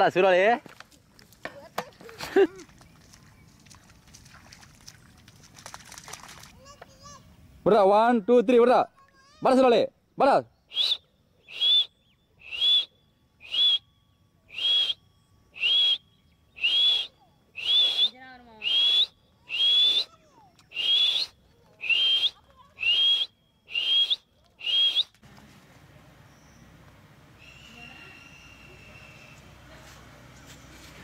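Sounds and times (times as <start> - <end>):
person whistling for dog: 10.7 - 12.9, 13.5 - 13.8, 14.6 - 15.0, 16.6 - 18.1, 20.7 - 25.1.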